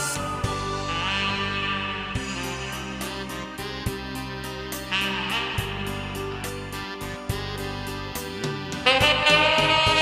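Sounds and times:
tenor saxophone long note: 0.0 - 10.0
backing track with guitar and beat: 5.5 - 10.0.

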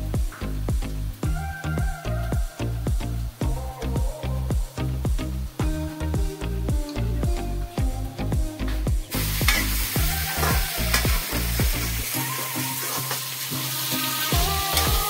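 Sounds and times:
background music with beat: 0.0 - 15.0
chicken sizzling in hot oil: 9.1 - 15.0.

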